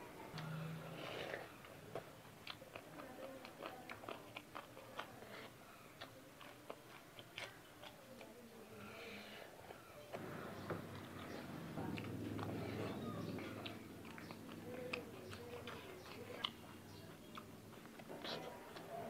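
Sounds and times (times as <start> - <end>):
person chewing with crunches: 0.4 - 8.3, 10.9 - 19.0
faint breathing: 8.7 - 10.7.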